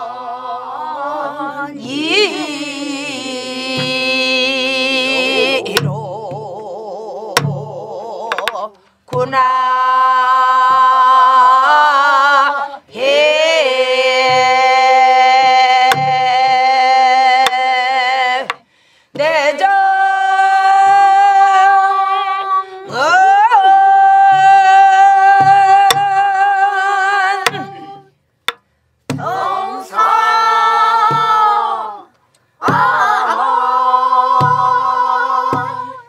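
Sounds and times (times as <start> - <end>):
group singing in unison: 0.0 - 28.1, 29.1 - 36.0
woman singing: 0.0 - 28.2, 29.2 - 36.0
barrel drum strokes: 3.4 - 6.5, 27.4 - 31.7, 32.6 - 36.0
drumstick clicks: 28.4 - 28.7.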